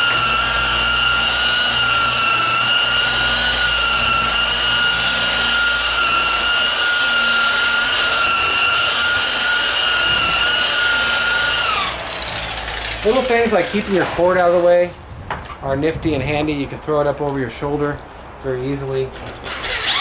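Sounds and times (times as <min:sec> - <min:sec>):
rotary buffer motor whine: 0:00.0 - 0:13.4.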